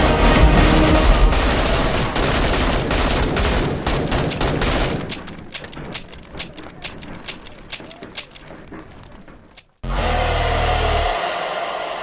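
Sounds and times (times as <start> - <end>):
assault rifle automatic fire: 0.3 - 5.2.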